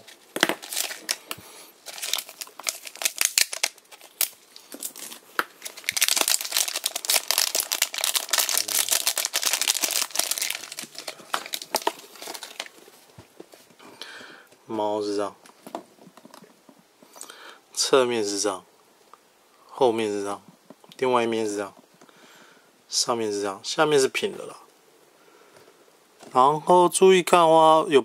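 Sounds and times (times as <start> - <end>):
plastic wrapper crinkling: 0.0 - 13.6.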